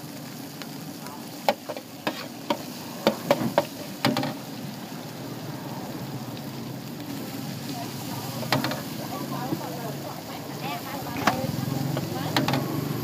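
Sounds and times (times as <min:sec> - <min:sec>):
frying hiss: 0:00.0 - 0:13.0
metal spatula knocking on wok: 0:03.1 - 0:04.4, 0:08.5 - 0:08.9.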